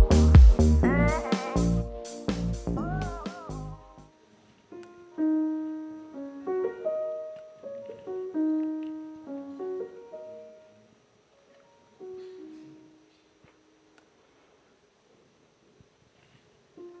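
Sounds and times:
soft slow piano melody: 0.0s - 14.4s, 16.7s - 17.0s.

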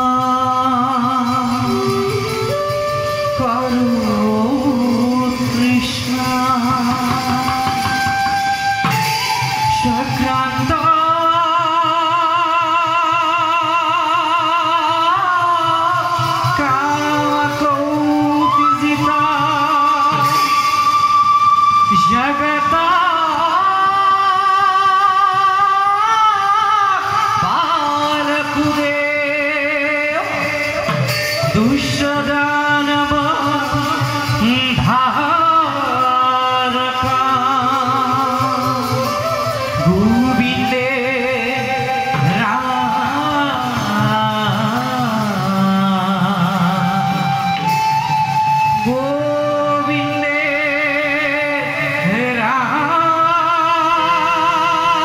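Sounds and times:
instrumental accompaniment: 0.0s - 55.0s
steady drum beat: 0.6s - 11.3s.

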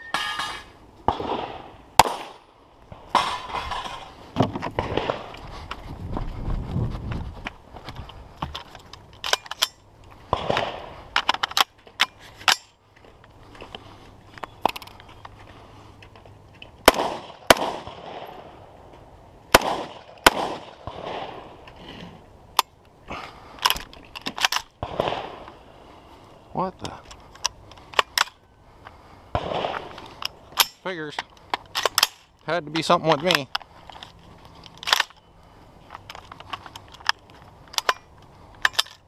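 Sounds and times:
rifle shots: 1.1s - 2.5s, 4.8s - 5.3s, 10.3s - 10.9s, 16.8s - 18.5s, 19.5s - 21.6s, 24.8s - 25.5s, 29.3s - 29.9s
ringing echo of gunshots: 16.9s - 18.4s, 19.5s - 21.4s.

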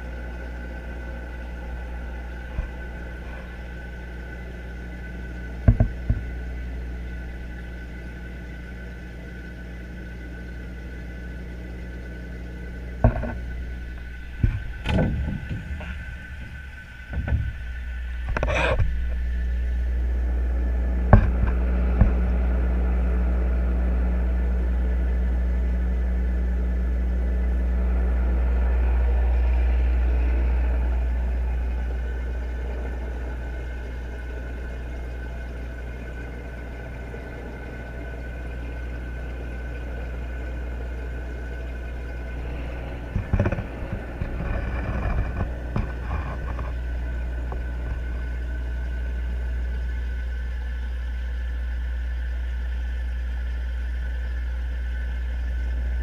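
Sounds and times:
low machine hum: 0.0s - 56.0s
irregular knocks and thumps: 5.6s - 6.4s, 13.0s - 19.3s, 21.1s - 22.2s, 42.4s - 46.8s.

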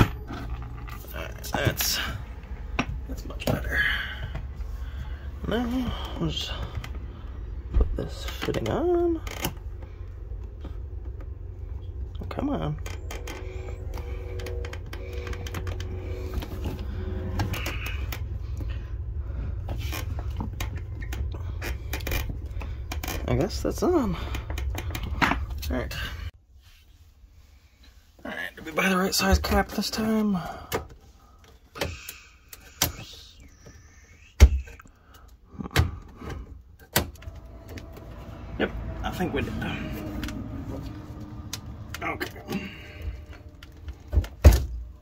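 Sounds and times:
steady low rumble: 0.0s - 26.4s, 37.1s - 45.0s.

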